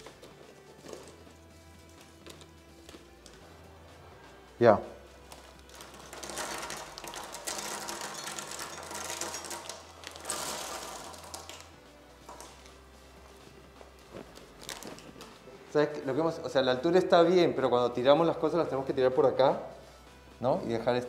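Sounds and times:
nuts clattering onto tabletop: 0:05.7 - 0:11.7.

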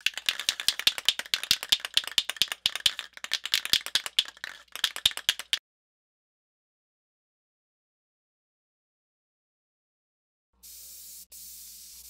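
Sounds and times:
spray can ball rattling: 0:00.0 - 0:05.6.

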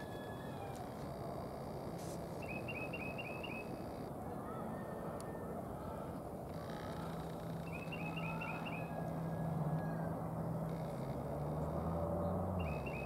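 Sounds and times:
vehicle engine humming: 0:05.4 - 0:13.0.

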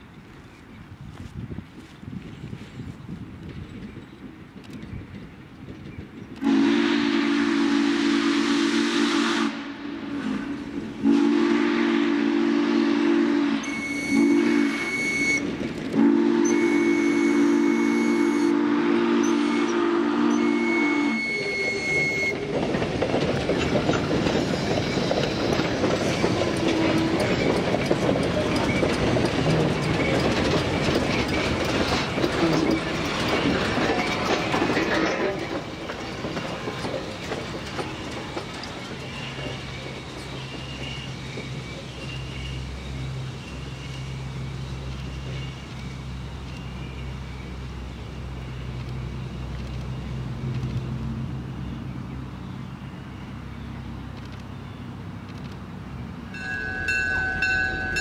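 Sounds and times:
train rumbling and clacking past: 0:00.0 - 0:58.0
steam whistle blasts: 0:06.4 - 0:22.4
thin high ringing tone: 0:56.3 - 0:58.0.

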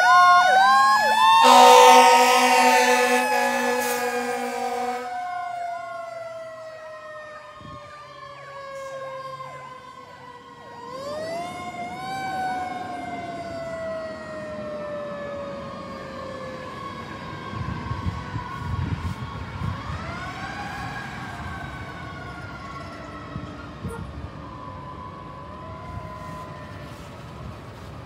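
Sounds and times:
electronic siren yelp: 0:00.0 - 0:09.0
fire engine siren wail: 0:00.0 - 0:28.0
horn blast: 0:01.0 - 0:05.2.

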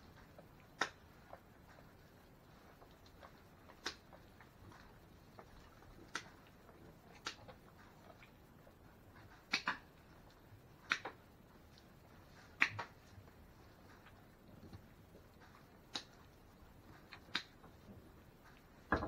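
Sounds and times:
shears snipping hoof: 0:00.1 - 0:08.4.

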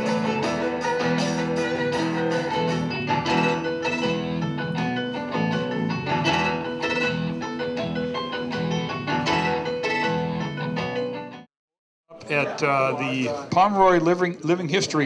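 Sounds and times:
plucked string music over loudspeakers: 0:00.0 - 0:07.4.

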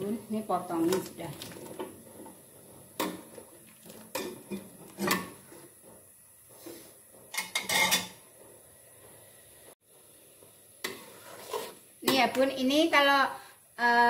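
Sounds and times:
spatula and bowl clanking on wok: 0:07.3 - 0:08.2.

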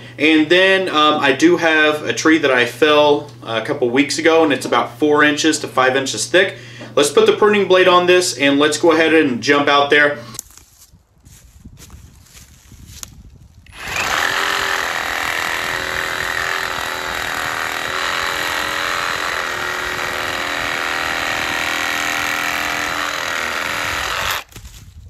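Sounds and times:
reciprocating saw cutting wood: 0:10.1 - 0:10.4, 0:13.7 - 0:24.6.

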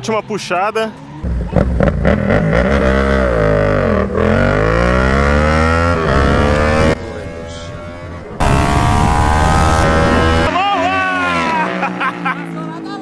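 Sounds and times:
motorcycle engines accelerating hard: 0:01.2 - 0:13.0.

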